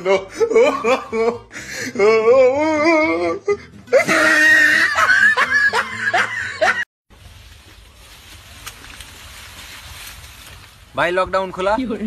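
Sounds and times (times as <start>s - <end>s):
shrill laughter: 3.9s - 6.8s.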